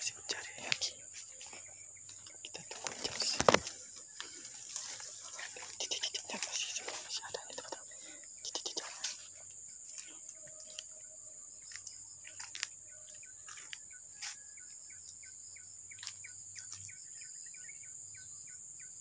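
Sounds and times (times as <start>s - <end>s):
crickets chirping: 0.0s - 19.0s
footsteps on dry leaves: 0.4s - 7.5s, 11.6s - 14.4s.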